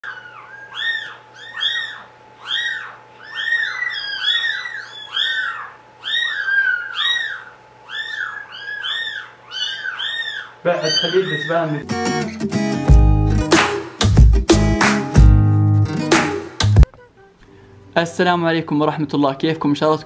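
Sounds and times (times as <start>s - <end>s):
kittens mewing: 0.0s - 12.0s.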